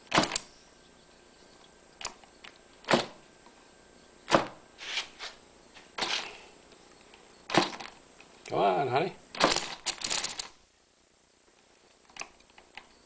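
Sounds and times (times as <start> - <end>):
model engine clicks and pops: 9.3 - 10.6.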